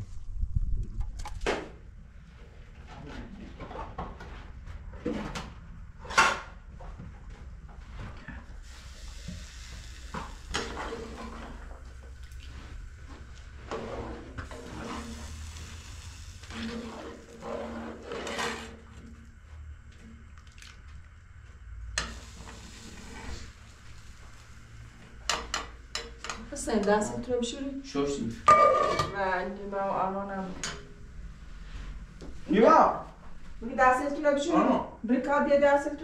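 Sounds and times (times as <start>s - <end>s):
water pouring and splashing: 20.3s - 21.0s.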